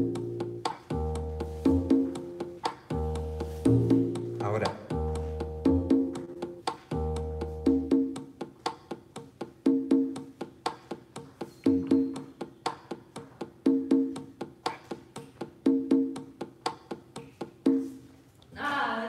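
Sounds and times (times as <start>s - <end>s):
bass line: 0.0s - 8.2s
conga drum rhythm: 0.0s - 18.2s.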